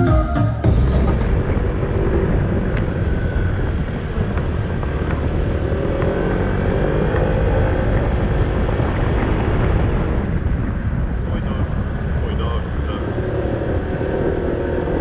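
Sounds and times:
background music: 0:00.0 - 0:01.8
wind noise on microphone: 0:00.0 - 0:15.0
vehicle engine running: 0:00.6 - 0:15.0.

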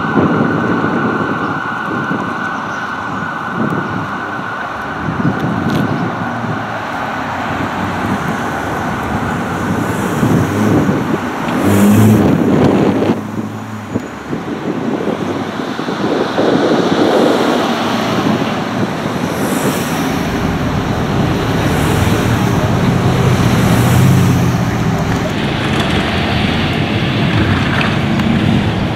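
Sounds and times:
cars and trucks passing: 0:00.0 - 0:28.9
heavy engine rumble: 0:00.0 - 0:28.9.

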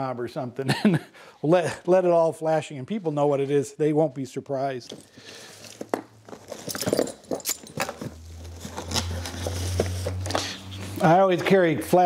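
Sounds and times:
items rummaged in cardboard box: 0:05.0 - 0:11.2.

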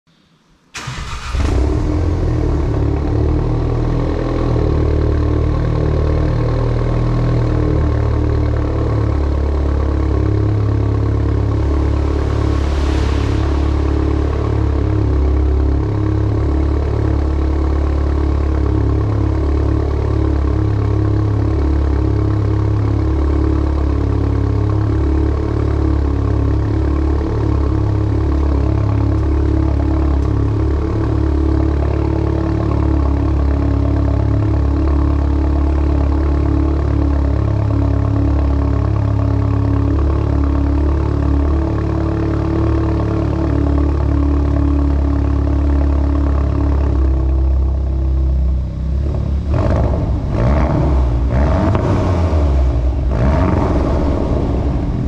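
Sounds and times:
car engine idling loudly: 0:00.8 - 0:55.0
brief hiss: 0:11.4 - 0:15.7.

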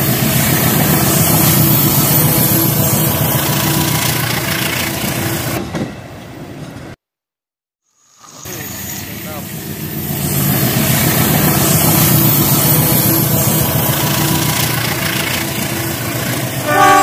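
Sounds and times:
toy train rattle and whir: 0:10.0 - 0:16.6.

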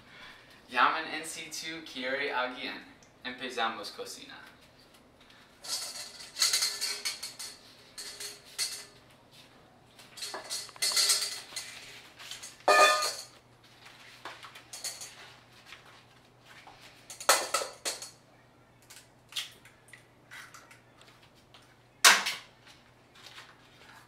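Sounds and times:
utensils clinking against metal bowl: 0:05.6 - 0:09.0, 0:10.1 - 0:13.4, 0:14.7 - 0:15.2, 0:17.1 - 0:18.2.

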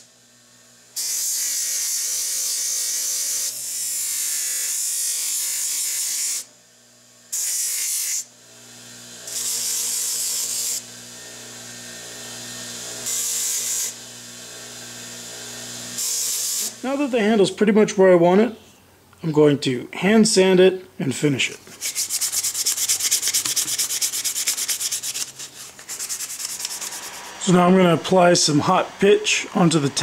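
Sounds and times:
grinder motor hum: 0:08.4 - 0:17.4, 0:21.6 - 0:30.0
grinder wheel grinding wood: 0:21.6 - 0:30.0.

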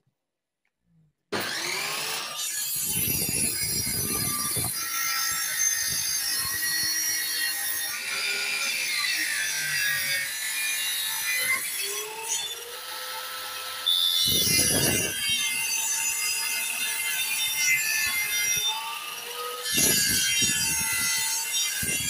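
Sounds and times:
table saw ripping wood: 0:01.3 - 0:22.0.

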